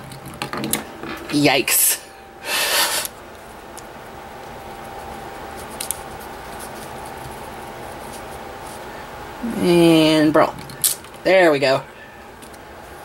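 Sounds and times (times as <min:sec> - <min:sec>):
low room hiss: 0:00.0 - 0:13.0.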